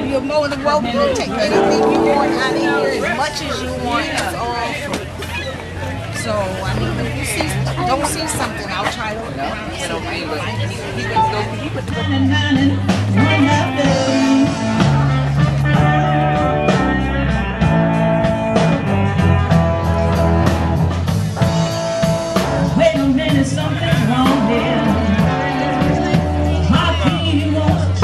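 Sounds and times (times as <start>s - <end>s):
blues band playing live: 0.0s - 5.3s, 10.5s - 28.0s
person singing: 12.0s - 15.1s, 22.7s - 28.0s.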